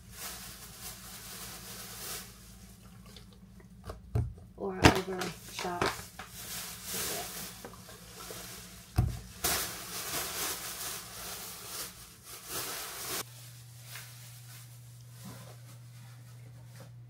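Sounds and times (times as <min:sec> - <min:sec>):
plastic bag rustling: 0:00.0 - 0:02.8, 0:04.7 - 0:16.8.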